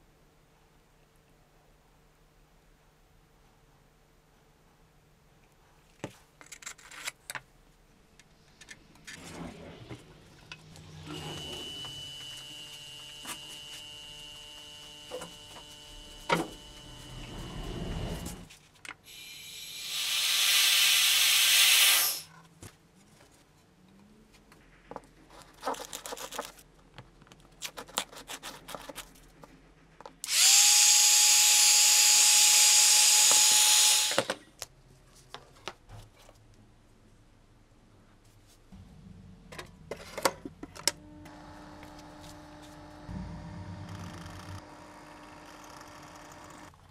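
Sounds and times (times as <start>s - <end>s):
steady high whine: 9.2s - 18.5s, 40.6s - 46.8s
handheld power tool running: 10.9s - 18.4s, 19.1s - 22.2s, 30.2s - 34.4s, 41.2s - 46.7s.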